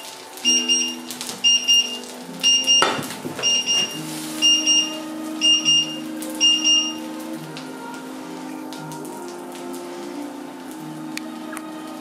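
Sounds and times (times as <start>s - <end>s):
electronic alarm double beeping: 0.5s - 7.0s.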